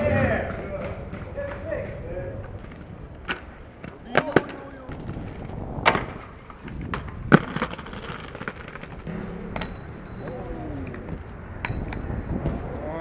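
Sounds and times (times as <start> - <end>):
skateboard wheels rolling on pavement: 0.0 - 13.0
loud skateboard cracks: 2.6 - 9.8
skateboard slaps and knocks: 3.2 - 5.2.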